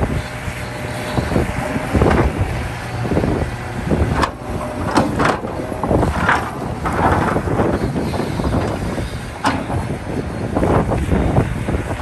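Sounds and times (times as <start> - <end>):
excavator diesel engine: 0.0 - 12.0
digging knocks and clatters: 4.1 - 10.0.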